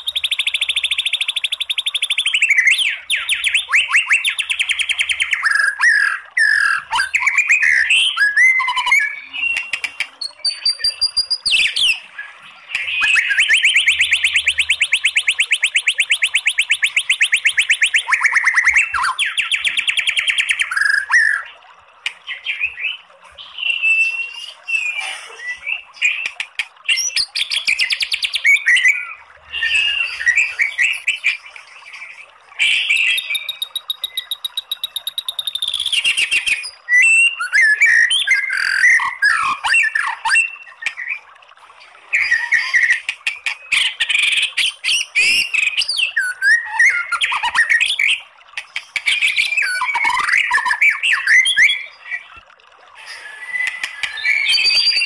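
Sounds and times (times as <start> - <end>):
bird song with whistles and rattles: 0.0 - 21.5, 22.2 - 41.2, 42.1 - 48.2, 48.8 - 52.3, 53.0 - 55.0.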